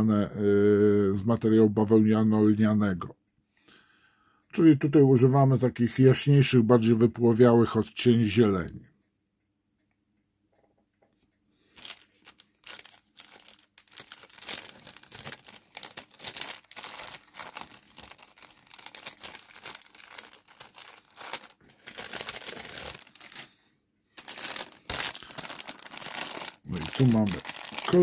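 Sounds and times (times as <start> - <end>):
plastic bag crinkling: 11.7 - 28.0.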